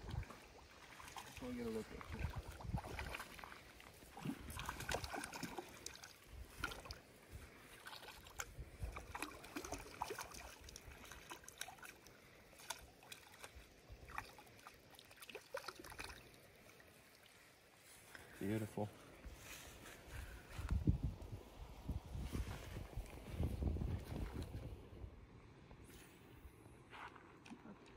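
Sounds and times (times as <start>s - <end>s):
fish splashing in water: 0.0s - 7.1s, 7.7s - 17.3s.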